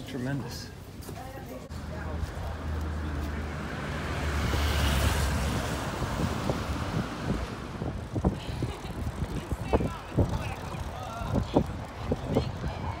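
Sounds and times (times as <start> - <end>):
street traffic noise: 0.0 - 13.0
wind rumbling on microphone: 3.6 - 13.0.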